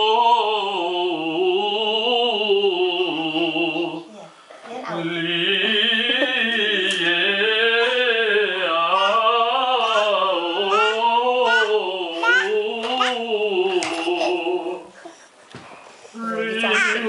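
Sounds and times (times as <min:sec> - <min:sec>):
woman singing wordless melody: 0:16.2 - 0:17.0.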